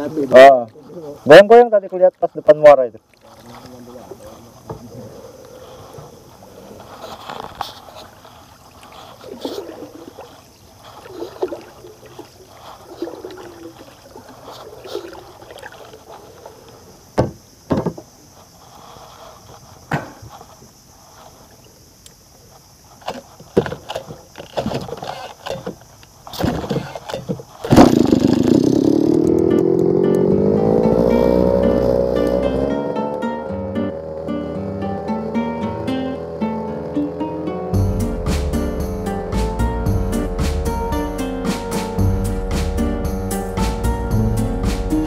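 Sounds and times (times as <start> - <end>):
paddle strokes in water: 2.9 - 21.8, 22.5 - 29.0
rattling knocks: 17.2 - 18.1
sharp knocks on wood: 17.2 - 18.1.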